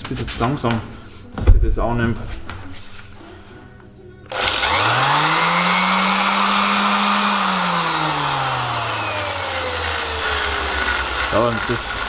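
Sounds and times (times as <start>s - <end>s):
orbital sander motor whining: 4.3s - 12.0s.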